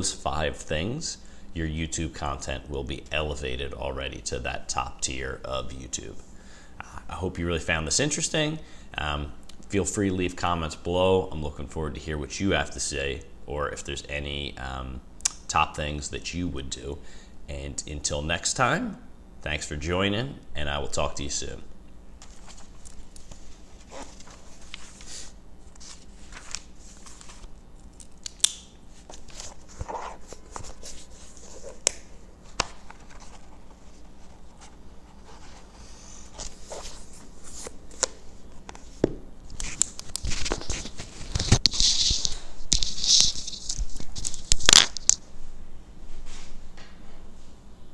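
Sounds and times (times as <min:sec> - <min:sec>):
paper rustling: 0:22.2 - 0:28.3, 0:28.9 - 0:45.2.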